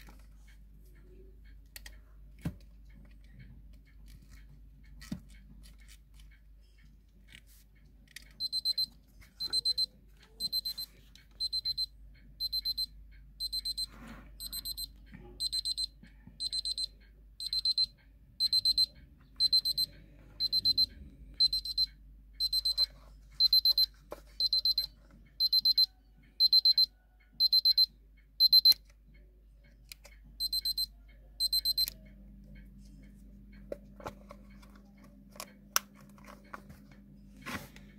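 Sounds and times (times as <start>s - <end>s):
alarm clock beeping: 8.4s - 28.9s, 30.4s - 32.7s.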